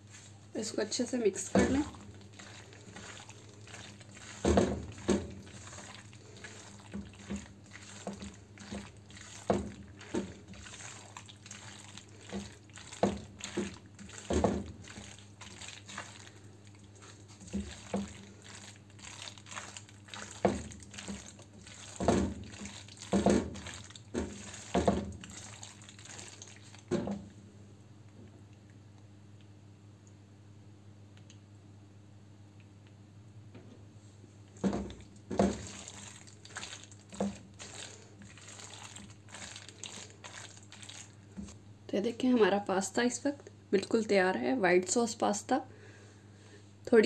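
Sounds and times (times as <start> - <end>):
spatula scraping pasta in sauce: 1.3 - 26.9, 34.6 - 41.6.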